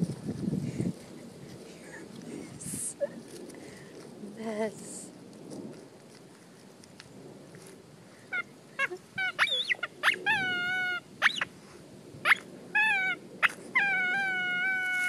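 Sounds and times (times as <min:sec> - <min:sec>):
dog whining: 0:08.8 - 0:11.4, 0:12.3 - 0:15.0.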